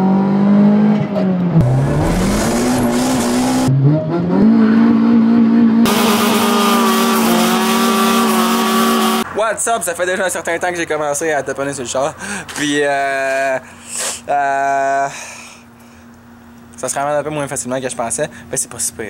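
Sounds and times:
car engine revving: 0:00.0 - 0:09.3.

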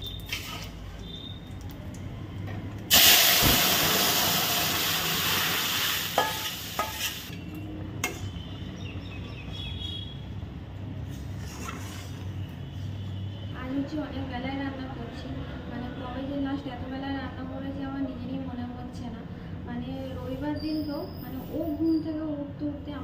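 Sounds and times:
food sizzling in hot oil: 0:02.9 - 0:07.4.

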